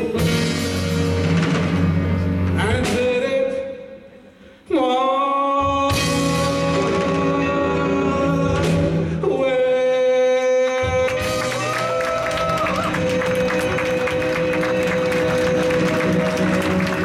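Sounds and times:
drums with cymbal strikes: 0.0s - 3.3s, 5.9s - 7.8s
man singing: 2.4s - 17.0s.

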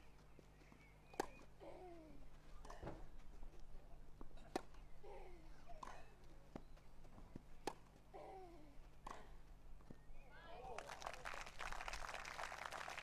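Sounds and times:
tennis ball bounces: 1.1s - 1.5s, 4.2s - 8.0s
racket striking tennis ball: 7.6s - 7.9s.

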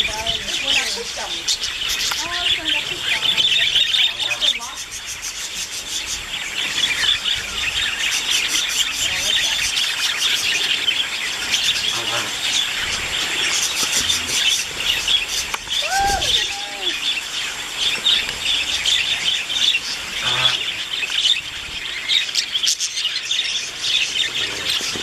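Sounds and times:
budgerigars chattering and chirping: 0.0s - 15.8s, 16.8s - 25.0s
louder lower bird call: 15.7s - 17.4s, 20.1s - 20.9s.

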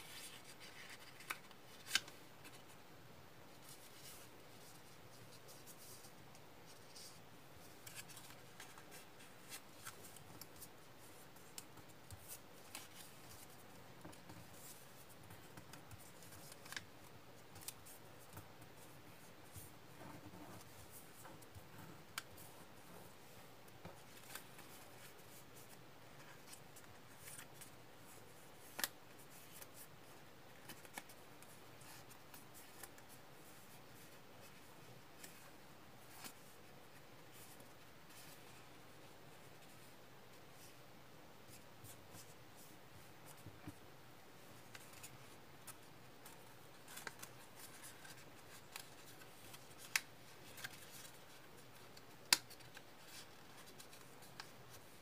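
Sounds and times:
paper rustling and crinkling: 0.0s - 2.8s, 3.5s - 23.2s, 44.5s - 55.0s.

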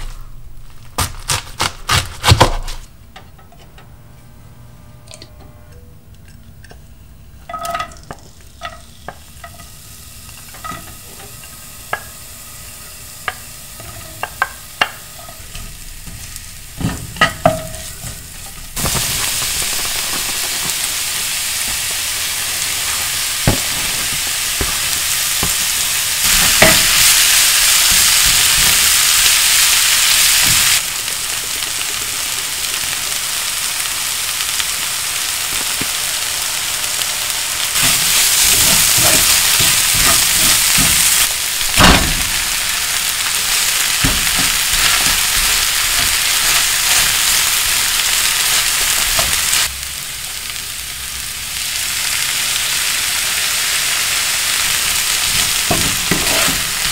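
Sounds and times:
food sizzling in hot oil: 7.2s - 56.9s
wooden spatula knocking on pan: 16.8s - 17.9s.

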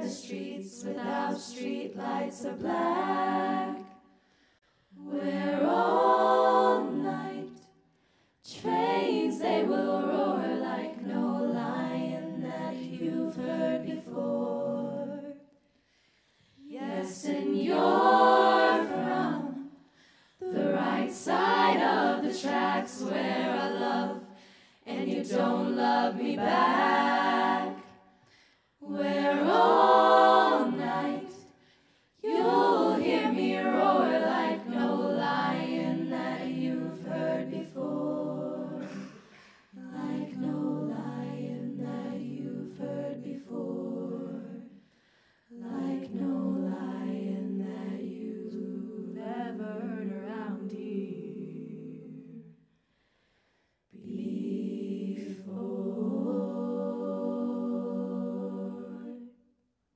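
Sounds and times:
women singing a cappella in harmony: 0.0s - 7.8s, 8.4s - 15.6s, 16.5s - 52.6s, 53.8s - 59.5s.

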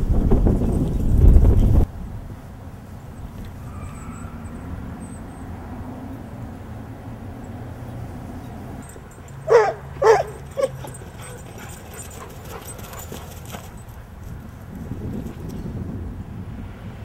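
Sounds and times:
dog barking: 9.3s - 13.8s.

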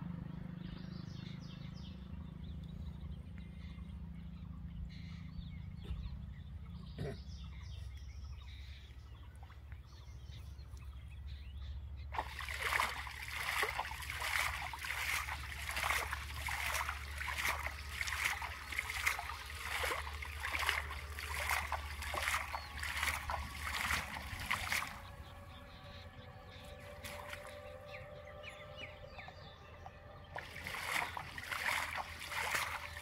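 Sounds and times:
net splashing in river water: 12.1s - 25.7s, 26.6s - 28.0s, 30.2s - 33.0s.

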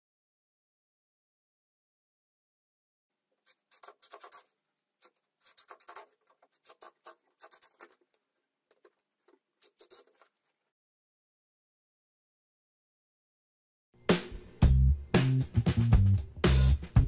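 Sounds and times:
tools scratching and tapping plywood: 3.4s - 10.6s.

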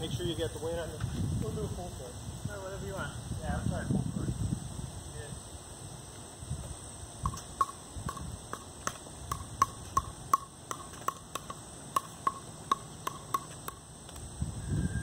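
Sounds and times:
ball bouncing on paddle: 7.3s - 13.8s.

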